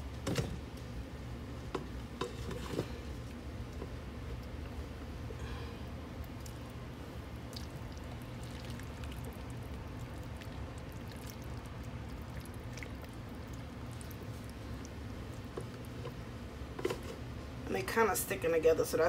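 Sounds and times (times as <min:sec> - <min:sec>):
spatula stirring sticky noodles: 0:06.1 - 0:17.3.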